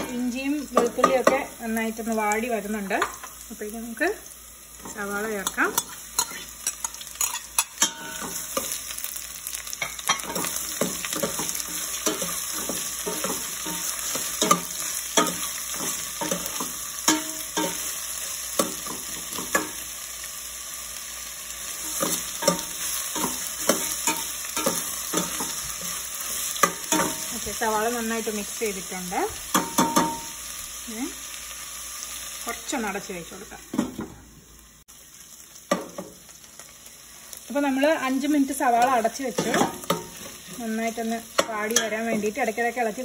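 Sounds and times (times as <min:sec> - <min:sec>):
onions sizzling in hot oil: 0:00.0 - 0:43.0
metal spoon scraping a pot: 0:05.4 - 0:08.8.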